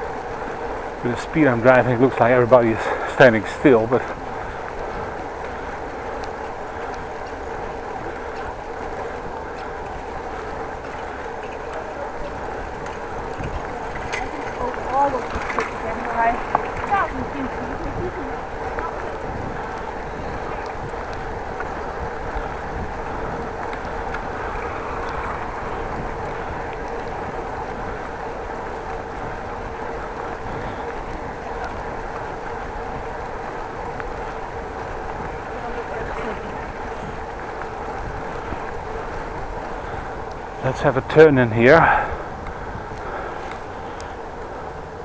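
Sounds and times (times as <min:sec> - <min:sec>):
bicycle tyres rolling: 0:00.0 - 0:45.0
wind rush on microphone: 0:00.0 - 0:45.0
faint ticks: 0:04.0 - 0:14.8, 0:19.6 - 0:40.5, 0:42.4 - 0:44.5
light ticks: 0:04.6 - 0:14.8, 0:42.4 - 0:44.2.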